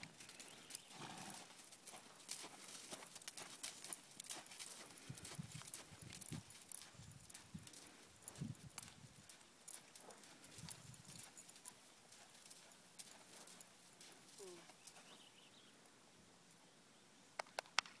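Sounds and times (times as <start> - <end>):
horse hoofbeats on sand: 0.0 - 15.4.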